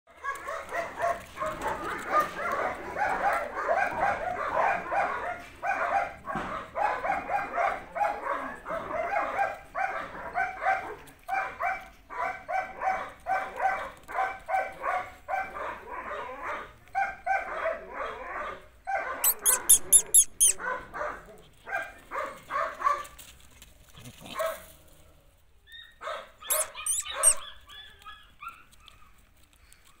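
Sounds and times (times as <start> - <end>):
dog barking: 0.2 - 23.2, 24.3 - 24.6, 26.0 - 28.7
sharp high-pitched sounds: 19.3 - 20.6.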